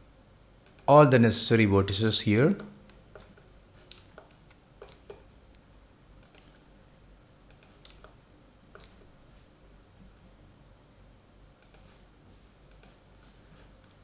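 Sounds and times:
computer mouse clicks: 0.6 - 0.9, 2.6 - 6.7, 7.5 - 9.1, 11.6 - 12.1, 12.7 - 13.0.

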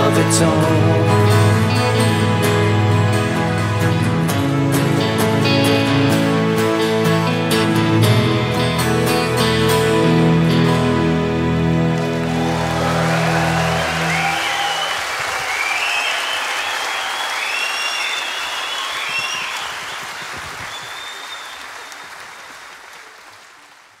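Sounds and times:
audience applauding and cheering: 11.3 - 24.0
shrill whistles: 13.1 - 22.2.

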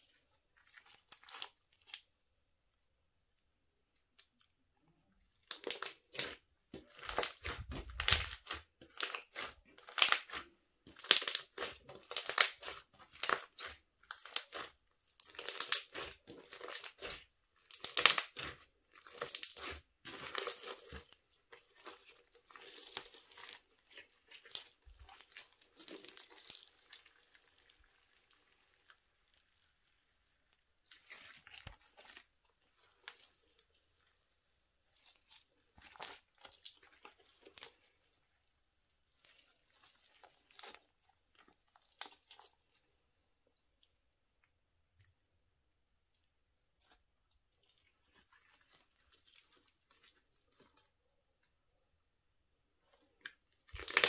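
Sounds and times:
slime squelching and crackling: 0.0 - 54.0.

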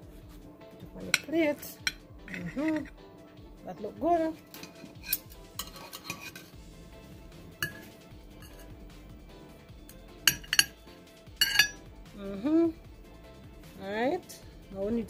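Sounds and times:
utensil clinking against plate: 1.0 - 2.9, 4.4 - 6.6, 7.6 - 8.8, 10.3 - 10.8, 11.4 - 11.8.

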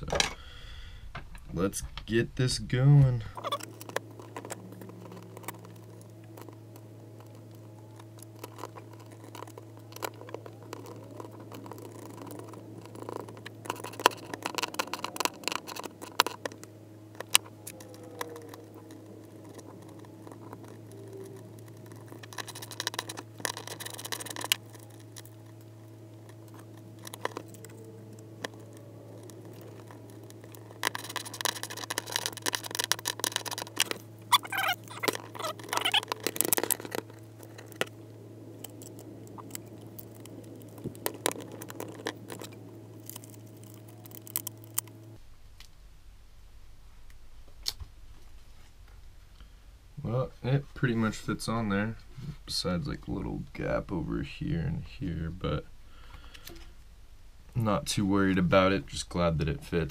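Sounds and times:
steady low hum: 0.0 - 59.9
scraping: 1.1 - 45.2.

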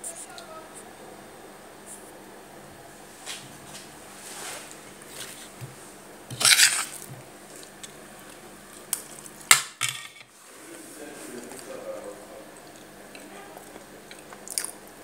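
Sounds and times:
rustling scrape: 3.2 - 5.6, 6.3 - 7.1.

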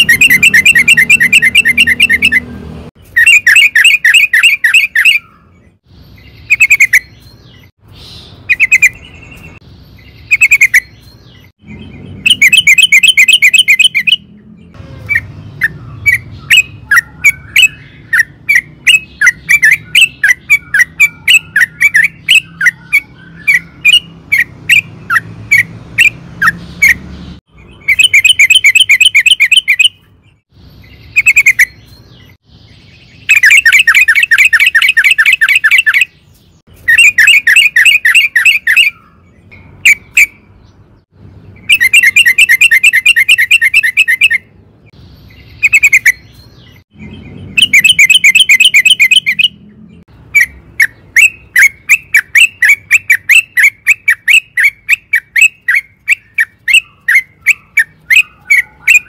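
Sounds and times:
bird chattering trills: 0.0 - 30.2, 30.8 - 40.6, 41.6 - 59.0
bird sharp notes: 0.0 - 32.4, 45.3 - 59.0.

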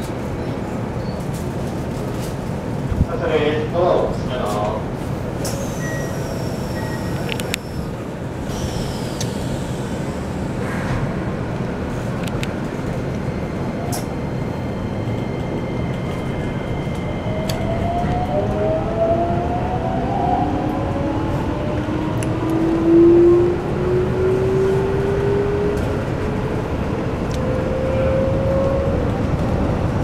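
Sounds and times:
train wheels rumbling on rail: 0.0 - 30.0
traction motors whining: 5.3 - 10.7.

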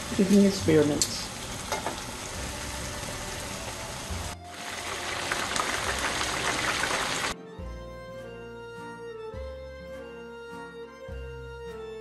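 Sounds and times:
frying crackling: 0.0 - 7.4
hot oil sizzling: 0.0 - 7.4.

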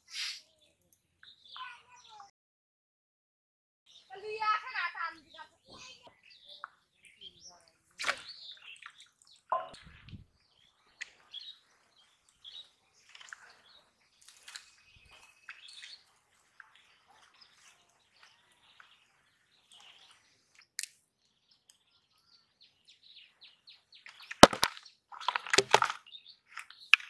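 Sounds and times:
birds chirping: 0.0 - 2.3, 3.9 - 27.0
fish splashing into bucket: 24.4 - 26.0.

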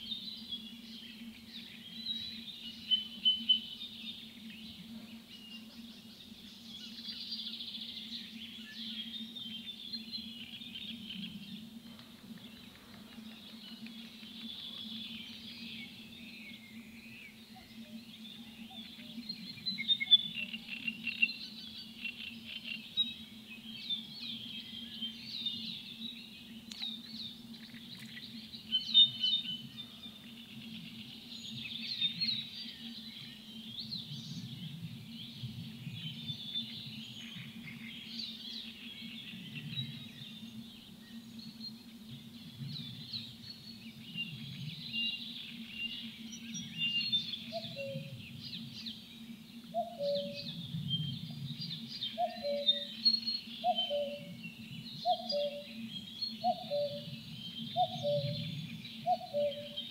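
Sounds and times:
small birds chirping and singing: 0.0 - 59.9
short lower bird calls: 49.8 - 50.5, 59.1 - 59.9.

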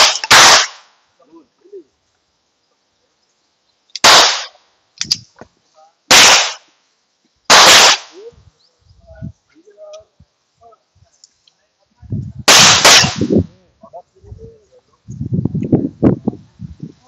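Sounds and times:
pistol shots with echo: 0.0 - 0.9, 4.0 - 4.6, 6.1 - 6.7, 7.5 - 8.2, 12.5 - 13.4.

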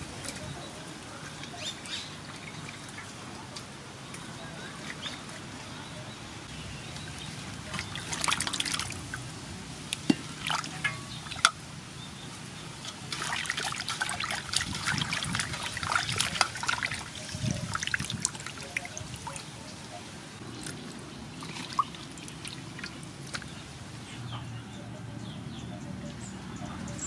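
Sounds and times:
water trickling and dripping: 0.0 - 24.3
water splashing in metal basin: 6.8 - 11.7, 12.6 - 19.6, 20.5 - 23.6.

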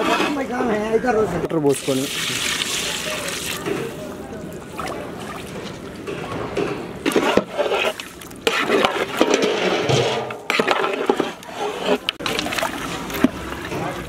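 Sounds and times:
ladle scraping cooking pot: 0.0 - 0.5, 7.0 - 12.4.

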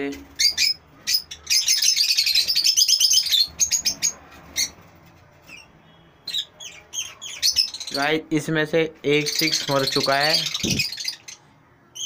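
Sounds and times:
lovebirds chirping: 0.0 - 12.0.

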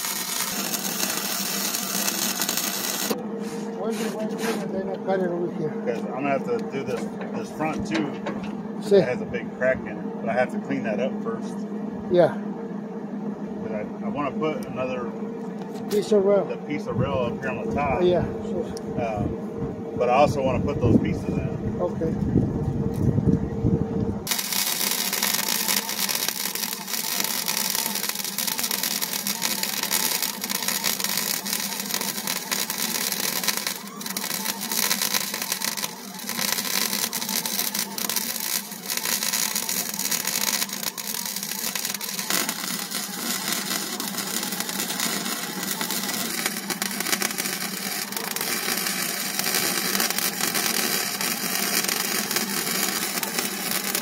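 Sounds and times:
arc welding hiss: 0.0 - 4.7, 24.3 - 54.0.

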